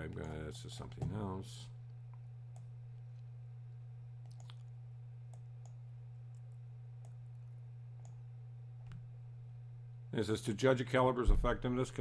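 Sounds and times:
steady low hum: 0.0s - 12.0s
computer mouse clicks: 4.2s - 4.6s, 5.3s - 7.2s, 8.0s - 8.2s.

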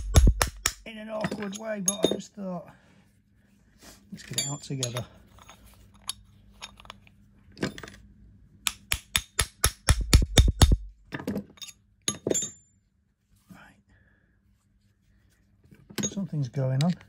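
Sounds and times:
hammer tapping metal punch: 0.0s - 0.9s, 8.6s - 10.9s
metal clinks: 4.2s - 7.0s, 11.6s - 12.7s.

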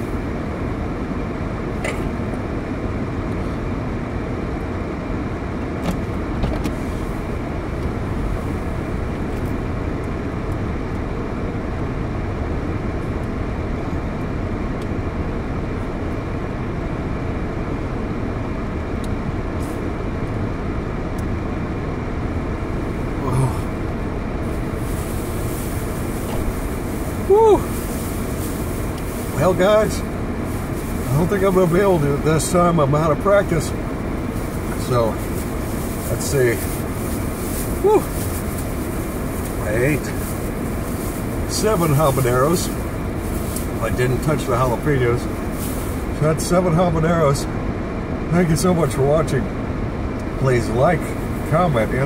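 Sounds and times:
car cabin rumble and hiss: 0.0s - 52.0s
short low vocal sound: 23.0s - 24.0s.

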